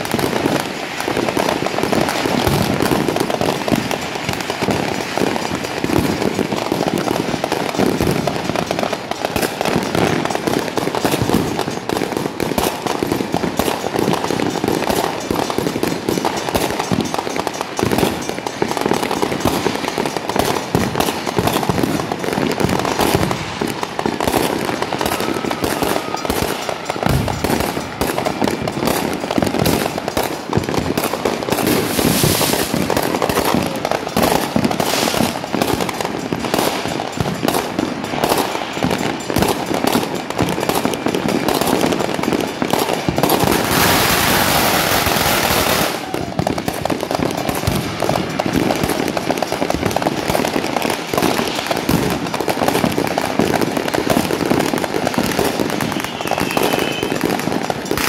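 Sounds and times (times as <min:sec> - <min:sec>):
fireworks popping and banging: 0:00.0 - 0:58.0
crackling and hissing: 0:31.6 - 0:33.8.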